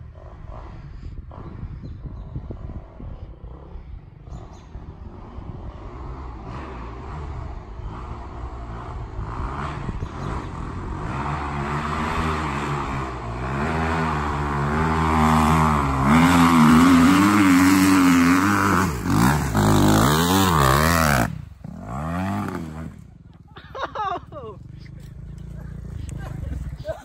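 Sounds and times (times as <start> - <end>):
dirt bike engine revving: 3.4 - 23.4.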